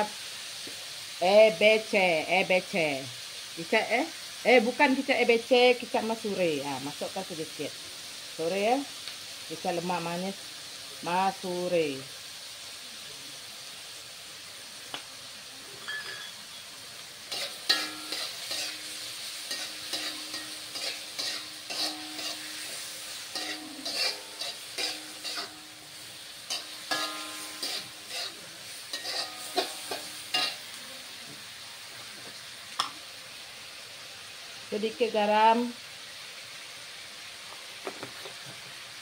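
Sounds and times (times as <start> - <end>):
food sizzling in a wok: 0.0 - 39.0
spatula scraping a wok: 15.8 - 31.0.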